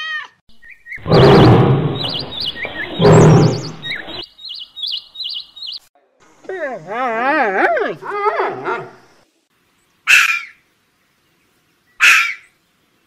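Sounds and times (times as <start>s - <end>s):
fox barks: 12.0s - 12.4s.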